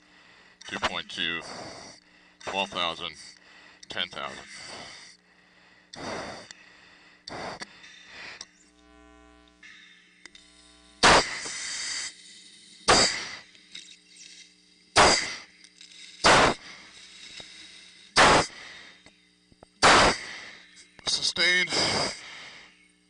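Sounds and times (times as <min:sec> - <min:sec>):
forceful breathing through mask: 0:00.0 - 0:08.5, 0:11.0 - 0:13.5, 0:15.0 - 0:19.1, 0:19.8 - 0:20.8, 0:21.7 - 0:22.9
low steady hum: 0:00.0 - 0:23.0.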